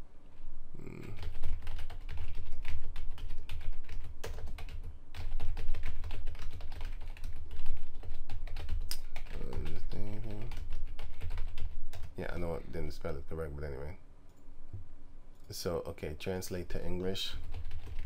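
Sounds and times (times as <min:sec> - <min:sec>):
computer keyboard typing: 0:01.0 - 0:12.5, 0:17.4 - 0:18.0.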